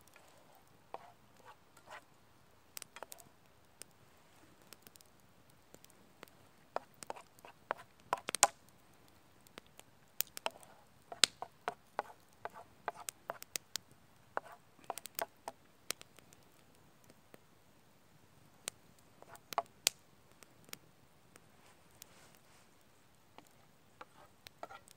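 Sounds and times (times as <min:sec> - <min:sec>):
campfire crackling: 0:00.0 - 0:24.9
wooden spatula scraping in pan: 0:00.1 - 0:02.1, 0:06.8 - 0:07.9, 0:11.4 - 0:13.4, 0:14.4 - 0:15.3, 0:23.4 - 0:24.9.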